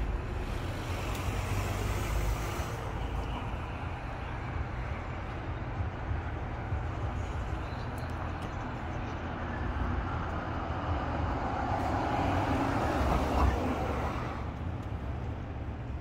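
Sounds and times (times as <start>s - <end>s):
vehicle passing: 0.0s - 7.5s
traffic rumble: 0.0s - 16.0s.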